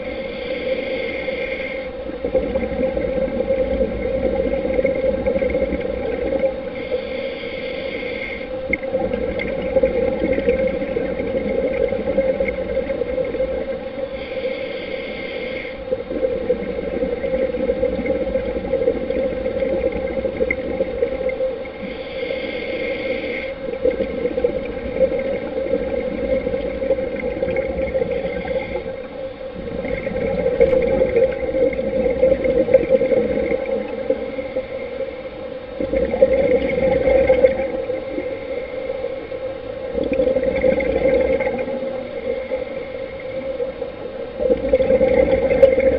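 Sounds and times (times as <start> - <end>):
underwater drone: 0.0 - 45.9
regulator bubbles burbling: 2.1 - 6.8, 8.7 - 13.8, 15.9 - 21.6, 23.6 - 35.0, 35.8 - 38.4, 39.8 - 42.6, 43.2 - 45.9.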